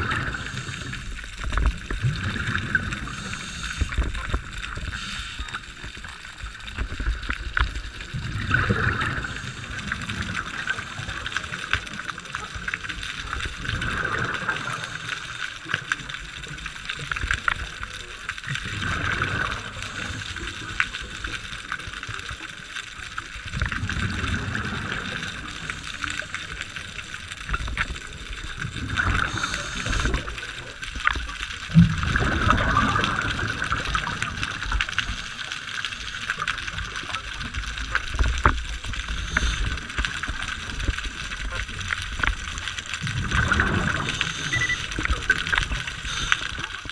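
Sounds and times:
underwater regulator bubbles gurgling: 0.0s - 46.9s.

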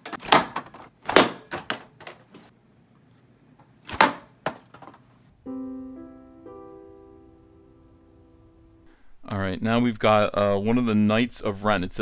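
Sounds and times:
held keyboard chord: 5.4s - 8.9s.

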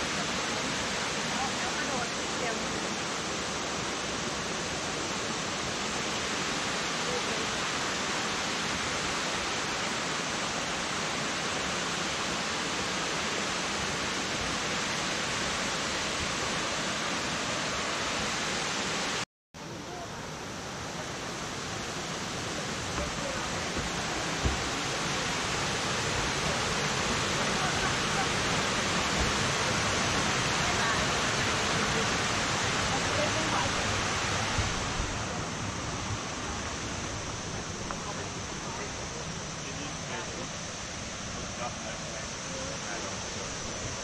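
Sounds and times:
waterfall rushing: 0.0s - 44.0s.

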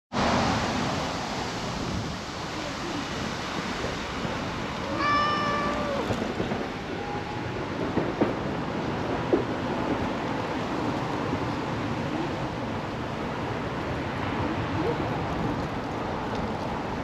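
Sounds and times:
cat meowing: 4.8s - 6.3s.

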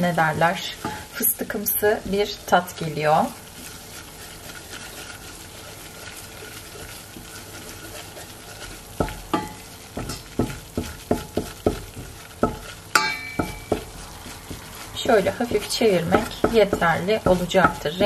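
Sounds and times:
butter and flour sizzling in pot: 0.0s - 18.0s
spatula knocking against pot: 9.0s - 14.7s, 16.0s - 18.0s.

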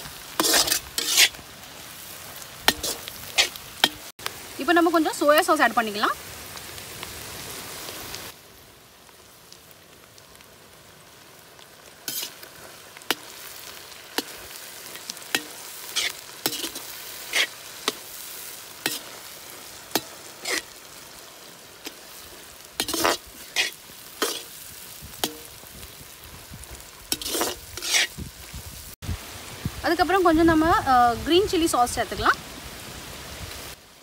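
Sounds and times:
ladle scraping wok: 0.0s - 1.4s, 2.7s - 4.1s, 12.0s - 25.8s, 27.1s - 28.2s
vegetables sizzling in wok: 0.0s - 34.0s.

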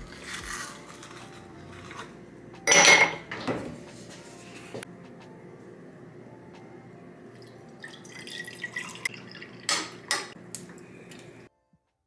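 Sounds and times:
liquid pouring over ice: 7.4s - 9.7s.

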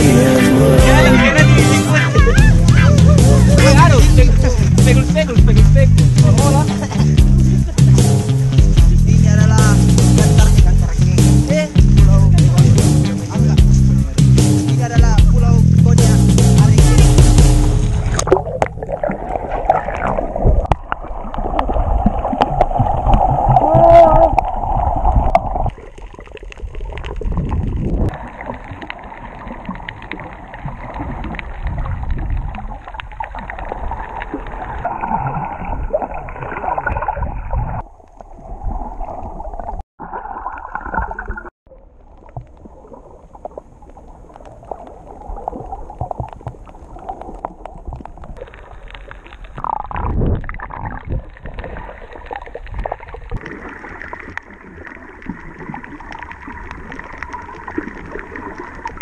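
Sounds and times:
muffled underwater sloshing: 16.0s - 59.0s
bubbling crackles: 17.3s - 59.0s.

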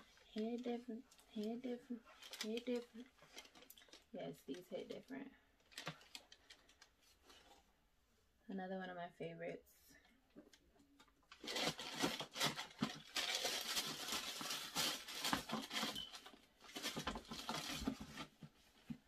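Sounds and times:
paper rustling and crinkling: 0.0s - 5.0s, 5.6s - 7.7s, 11.3s - 19.0s.

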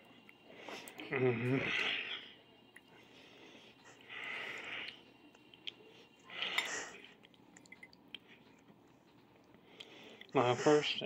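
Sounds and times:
person breathing softly: 0.4s - 5.1s, 9.5s - 11.0s.

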